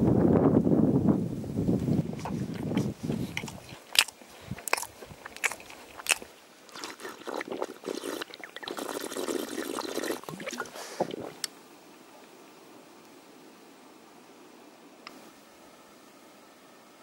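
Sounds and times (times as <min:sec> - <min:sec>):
crunchy bites and chewing: 0:01.9 - 0:08.8
liquid sloshing in bottle: 0:02.2 - 0:11.5.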